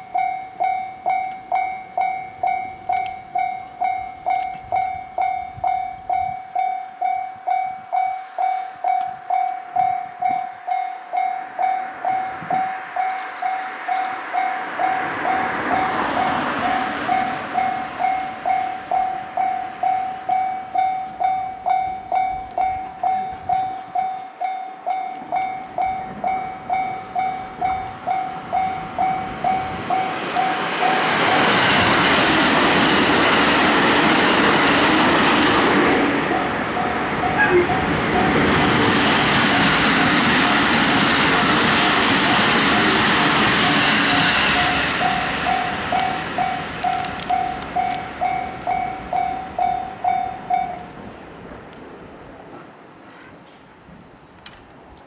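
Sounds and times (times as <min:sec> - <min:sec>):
level-crossing warning bell: 0:00.0 - 0:34.5, 0:35.1 - 0:51.1
rushing noise: 0:07.8 - 0:24.2, 0:25.3 - 0:52.5.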